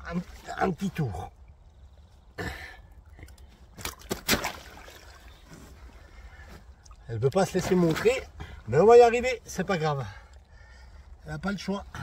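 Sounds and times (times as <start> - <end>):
fish splashing in water: 3.8 - 5.4.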